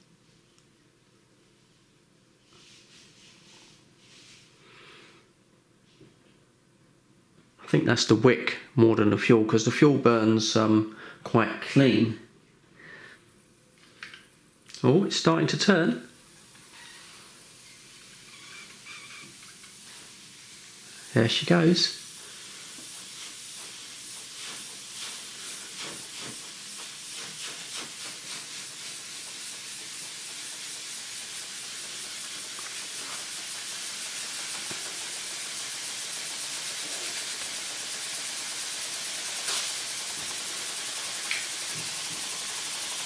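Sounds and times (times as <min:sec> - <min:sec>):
steam model hissing and pulsing: 0:15.2 - 0:43.0.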